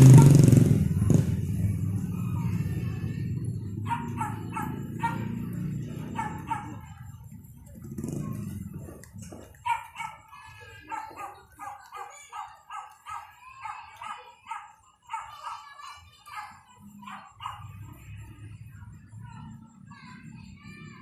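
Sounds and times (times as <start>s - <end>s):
dog yapping: 3.6s - 7.0s, 9.5s - 17.8s.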